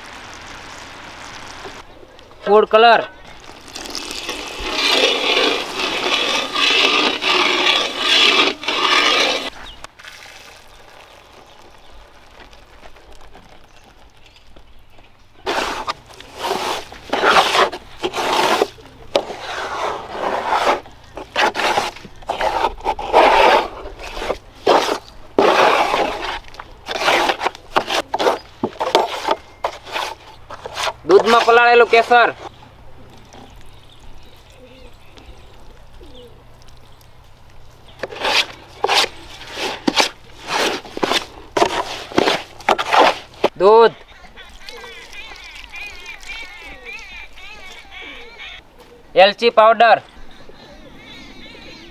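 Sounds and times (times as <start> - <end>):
spoon scraping metal pan: 3.9 - 9.8.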